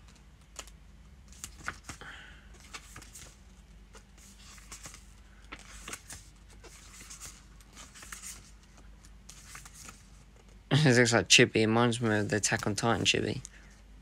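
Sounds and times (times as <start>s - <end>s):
book pages turning: 0.0s - 10.6s
paper flaps and ticks: 0.0s - 10.6s.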